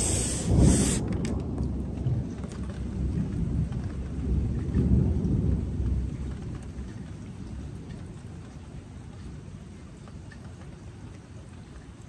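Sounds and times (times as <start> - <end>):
thunder rumbling: 0.0 - 7.4
rain: 0.0 - 12.0.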